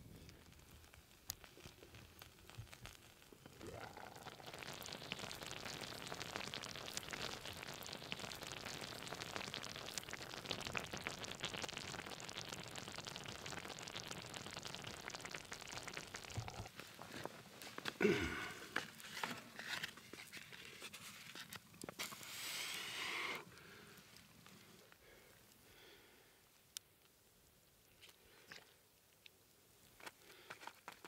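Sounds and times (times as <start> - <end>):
sauce bubbling and sizzling: 0.0 - 26.0.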